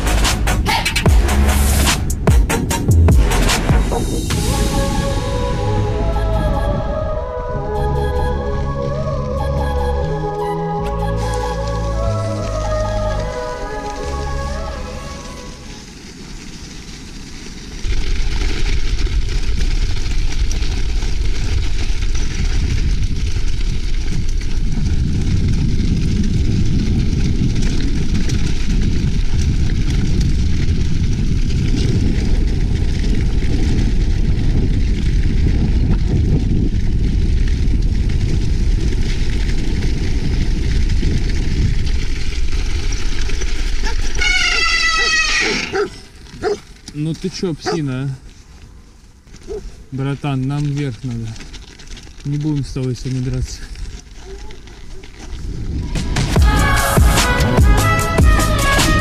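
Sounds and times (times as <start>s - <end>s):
music: 0.0s - 15.6s, 56.2s - 59.0s
wind buffeting microphone: 11.3s - 59.0s
dog barking: 43.8s - 46.6s, 47.6s - 47.9s.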